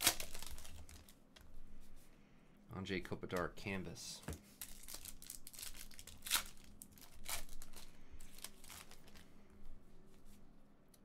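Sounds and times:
foil wrapper tearing and crinkling: 0.0s - 1.2s, 4.6s - 9.2s.

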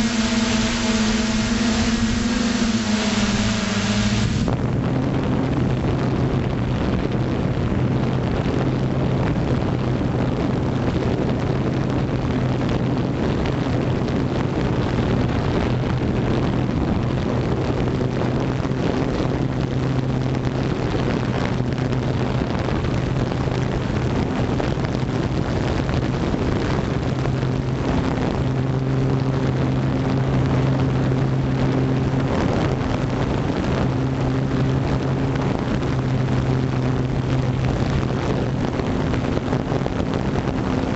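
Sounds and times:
air hiss on microphone: 0.0s - 4.6s
drone motors humming: 0.0s - 4.8s.

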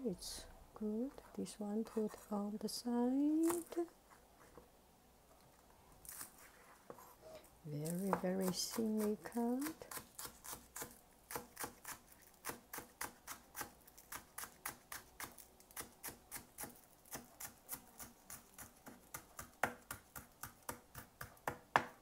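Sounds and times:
knife chopping on plastic board: 7.8s - 22.0s.

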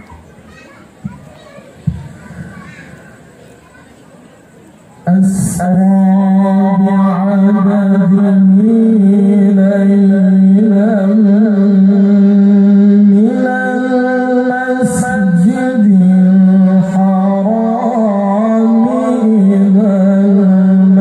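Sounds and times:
man chanting over loudspeaker: 5.0s - 21.0s.

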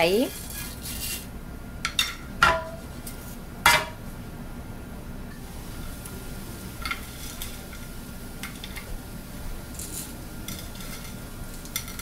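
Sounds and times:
seeds sizzling in oil: 5.4s - 12.0s
small crackles: 9.7s - 12.0s.

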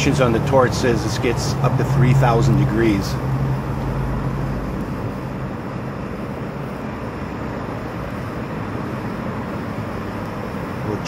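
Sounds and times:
torch flame jet rushing: 0.0s - 11.0s.

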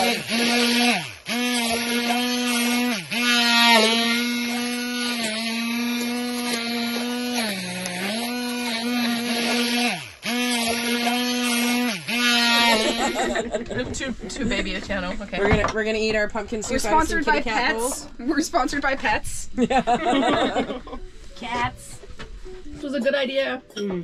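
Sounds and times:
immersion blender motor whining: 0.0s - 13.6s.

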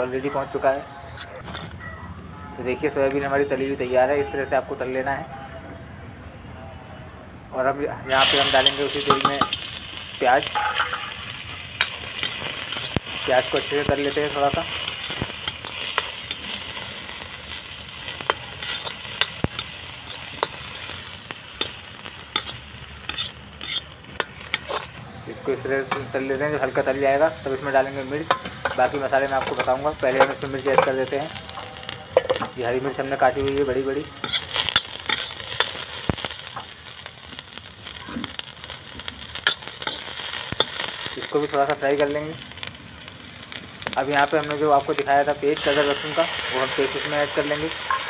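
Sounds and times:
onion sizzling in oil: 8.1s - 48.0s
metal ladle stirring: 8.2s - 9.7s, 10.5s - 16.5s, 18.1s - 20.9s, 21.6s - 25.0s, 34.1s - 35.8s
ladle scraping a pan: 18.3s - 20.6s, 22.3s - 25.0s, 34.2s - 35.3s.

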